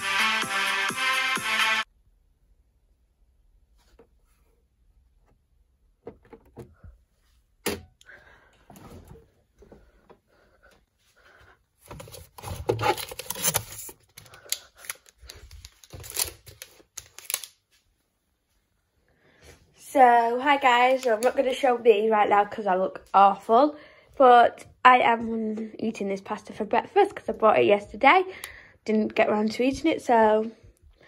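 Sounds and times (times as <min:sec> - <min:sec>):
plastic packaging crinkling: 0:11.9 - 0:17.7, 0:20.6 - 0:21.7.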